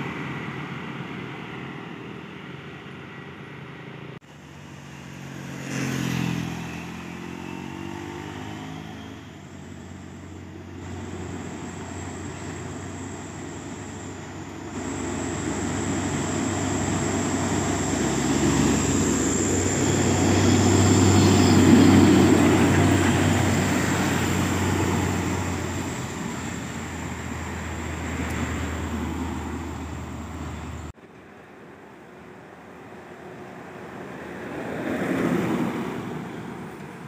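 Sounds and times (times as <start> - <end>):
diesel truck engines humming: 8.9 - 31.0.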